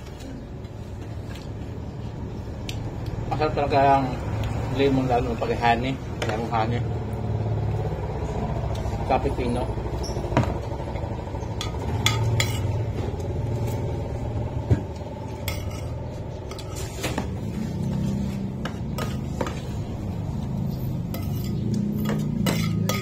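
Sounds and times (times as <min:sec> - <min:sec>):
steady low hum: 0:00.0 - 0:23.0
spoon and plates clinking: 0:11.6 - 0:12.8, 0:15.4 - 0:16.9, 0:20.9 - 0:23.0.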